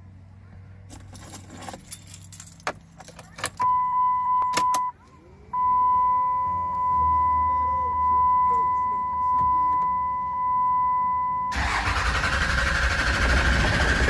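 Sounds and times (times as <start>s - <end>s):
keys jangling: 0.9s - 3.6s
electronic warning chime: 5.6s - 11.6s.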